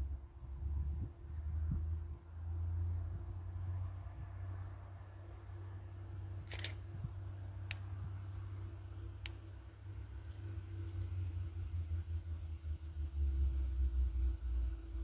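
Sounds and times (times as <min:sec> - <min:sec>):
distant diesel railbus hum: 0:00.0 - 0:15.0
sharp clicks: 0:06.4 - 0:06.8.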